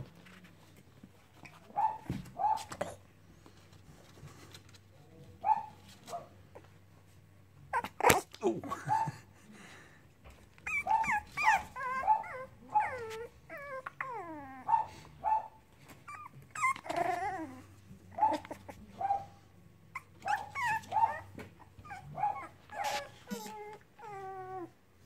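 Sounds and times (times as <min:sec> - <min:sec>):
puppies whimpering and yipping: 0:10.6 - 0:14.8, 0:15.9 - 0:18.7, 0:19.9 - 0:24.7.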